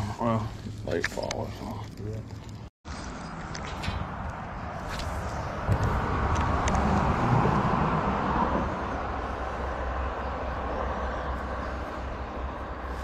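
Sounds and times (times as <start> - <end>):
vehicle crossing overhead bridge: 3.1 - 13.0.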